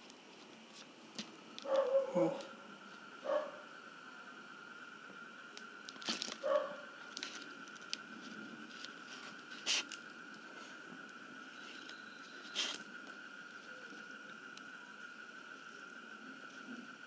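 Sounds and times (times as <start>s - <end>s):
plastic bottle crinkling: 5.9s - 6.5s.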